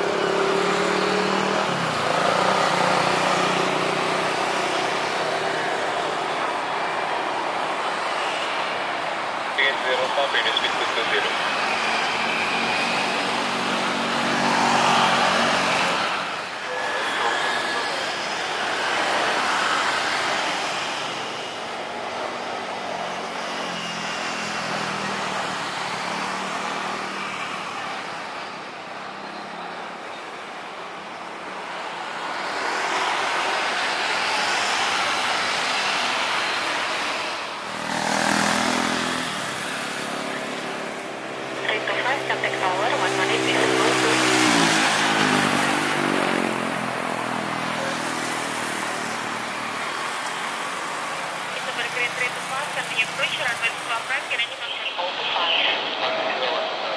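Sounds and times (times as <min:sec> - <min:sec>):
jet engines roaring on approach: 0:00.0 - 0:56.9
jet engine noise: 0:49.4 - 0:56.9.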